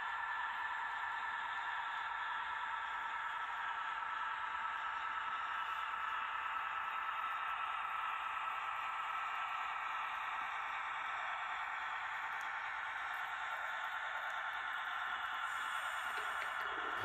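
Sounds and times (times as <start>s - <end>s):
model train motor humming: 12.3s - 17.0s.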